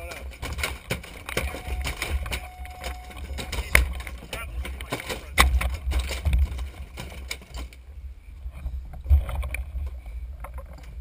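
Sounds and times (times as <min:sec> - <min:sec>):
gear knocking against boat: 0:00.0 - 0:07.7
wind rumbling on camera: 0:00.0 - 0:11.0.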